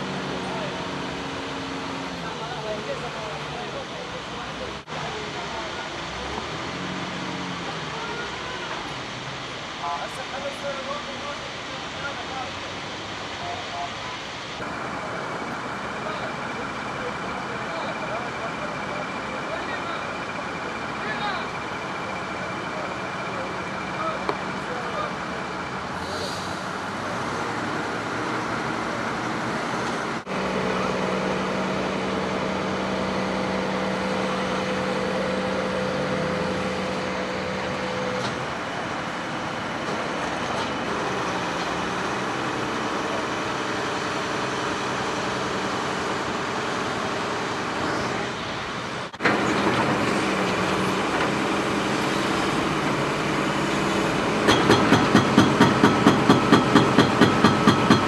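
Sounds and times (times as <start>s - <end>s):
excavator diesel engine running: 0.0s - 58.0s
hydraulic breaker hammering concrete: 54.3s - 58.0s.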